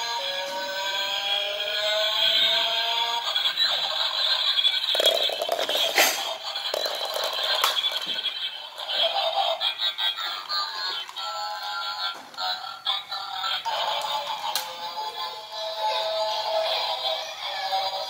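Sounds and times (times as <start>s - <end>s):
electronic toy tune: 0.0s - 17.4s
plastic rattling on tile floor: 4.9s - 9.3s.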